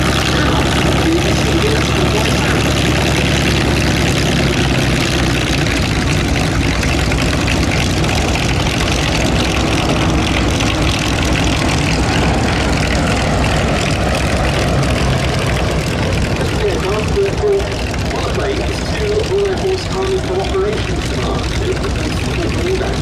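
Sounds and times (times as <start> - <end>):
propeller aircraft engine running: 0.0 - 23.0.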